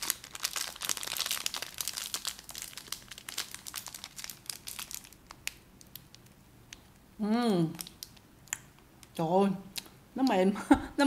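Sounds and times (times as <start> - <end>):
snack wrapper crinkling: 0.0 - 7.0, 7.8 - 9.1.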